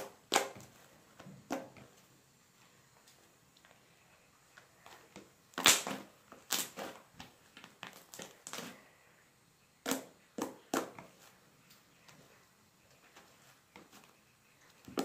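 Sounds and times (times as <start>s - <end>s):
slime squishing and popping: 5.5s - 6.9s.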